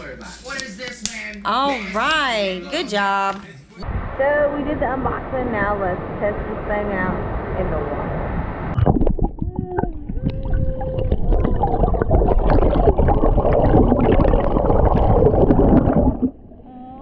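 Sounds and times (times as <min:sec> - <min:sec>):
muffled water churning underwater: 0:04.9 - 0:16.7.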